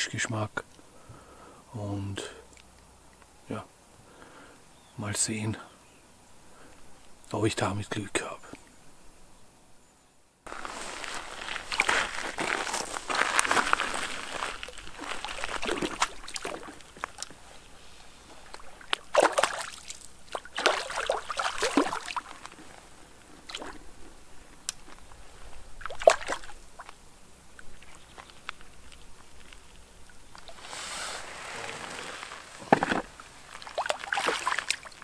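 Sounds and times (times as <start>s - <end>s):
water sloshing and splashing: 10.6s - 17.3s, 18.5s - 22.6s, 25.8s - 26.9s, 30.4s - 35.0s.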